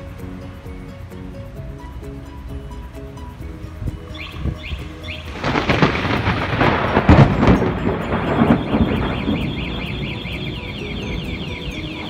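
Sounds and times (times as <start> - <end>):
thunder rumble: 4.4 - 12.0.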